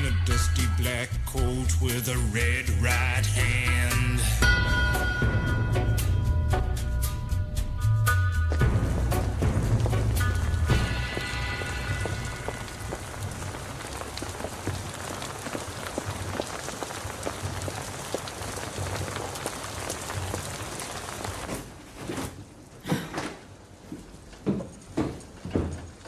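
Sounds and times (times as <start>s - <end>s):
steady rain falling: 8.5s - 22.8s, 23.4s - 26.0s
footsteps on wooden stairs: 21.3s - 26.0s.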